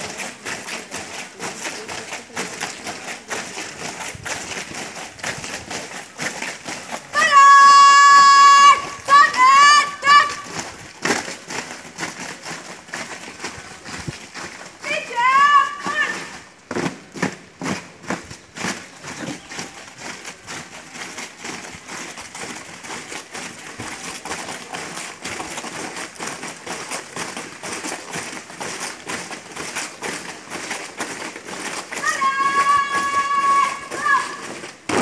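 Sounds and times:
marching footsteps: 0.0s - 35.0s
person shouting drill command: 7.1s - 10.6s, 14.8s - 16.4s, 32.0s - 34.6s.

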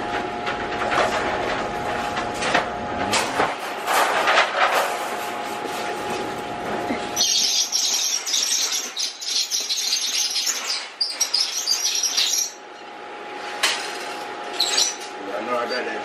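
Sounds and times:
puppies squealing and yelping: 7.1s - 12.6s.

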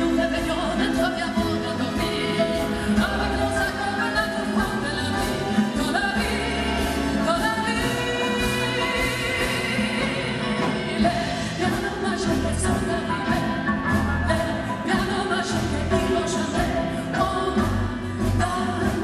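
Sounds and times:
piano: 0.0s - 19.0s
woman singing a ballad: 0.0s - 19.0s.

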